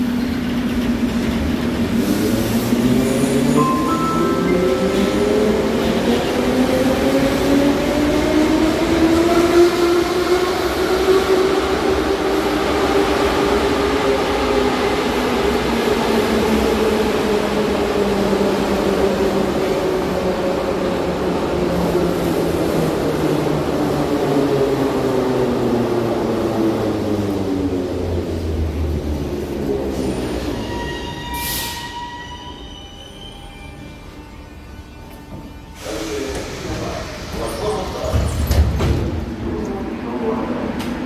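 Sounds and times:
train wheels rumbling: 0.0s - 32.6s.

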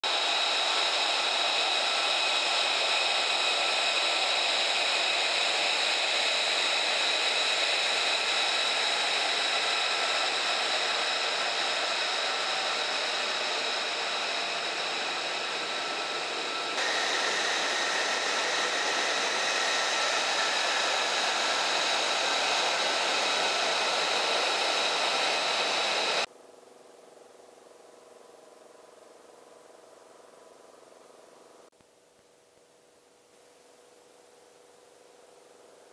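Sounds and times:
jet engine whine: 0.0s - 26.3s.

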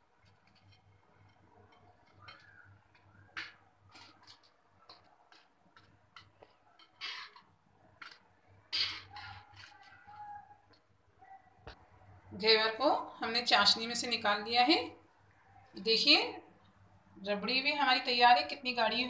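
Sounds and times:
metal tongs tapping a pan: 0.4s - 8.2s.

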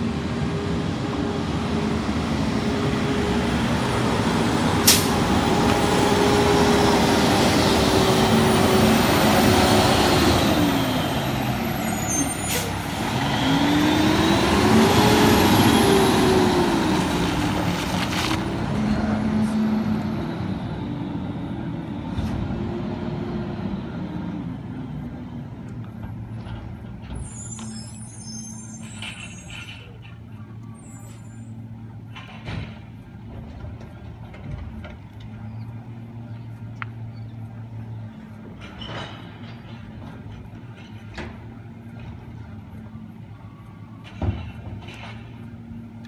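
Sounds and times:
garbage truck engine passing: 0.0s - 32.1s.

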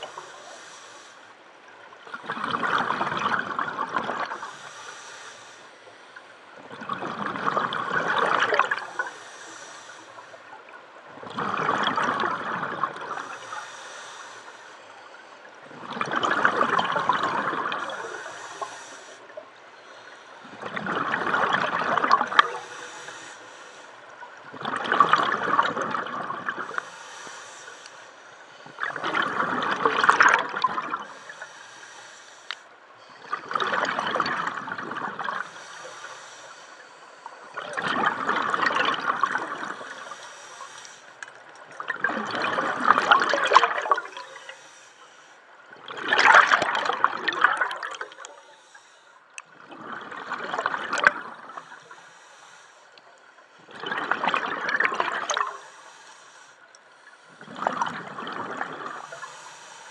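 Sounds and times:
diver inhaling through regulator: 0.0s - 1.4s, 4.3s - 6.3s, 8.7s - 10.5s, 12.9s - 15.4s, 17.7s - 20.8s, 22.0s - 24.0s, 26.6s - 29.7s, 30.8s - 34.0s, 35.2s - 41.3s, 42.5s - 45.5s, 46.4s - 49.4s, 51.0s - 53.6s, 55.2s - 59.9s
scuba regulator bubbling exhale: 2.2s - 5.5s, 6.6s - 10.4s, 11.2s - 14.5s, 15.6s - 27.9s, 28.7s - 32.0s, 33.1s - 41.0s, 41.6s - 44.8s, 45.7s - 48.8s, 49.4s - 52.3s, 53.6s - 56.5s, 57.2s - 59.9s.

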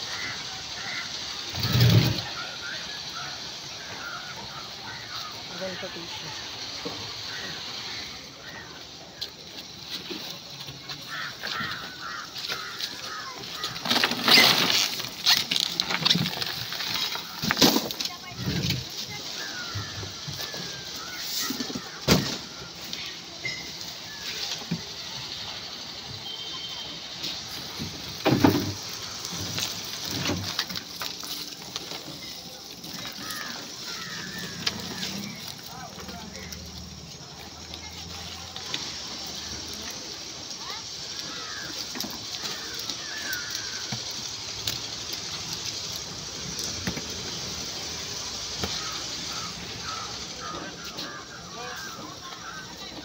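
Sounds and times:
ice and fish sliding onto table: 1.4s - 2.6s, 11.6s - 25.0s, 27.4s - 36.8s.

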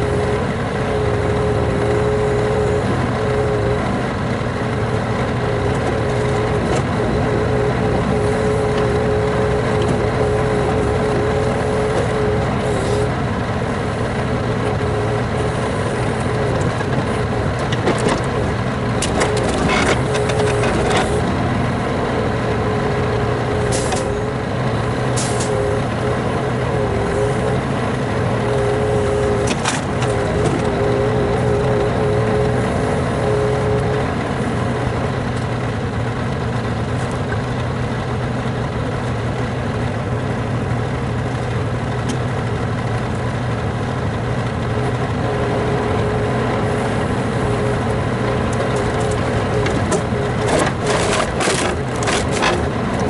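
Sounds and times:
truck engine running: 0.0s - 53.0s.

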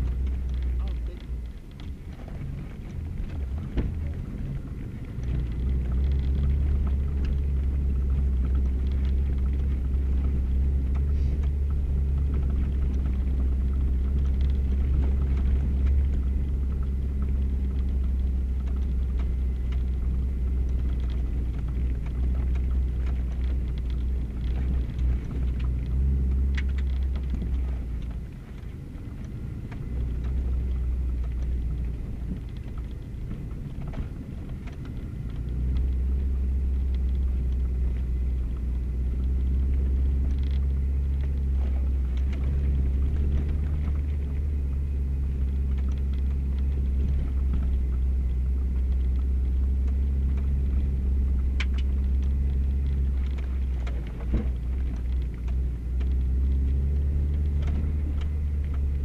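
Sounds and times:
car engine and road rumble: 0.0s - 59.0s
light ticks: 0.0s - 59.0s.

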